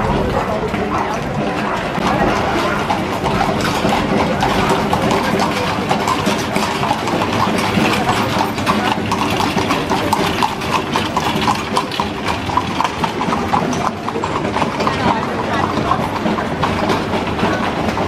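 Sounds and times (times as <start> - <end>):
hooves clip-clopping on paving: 0.0 - 18.0.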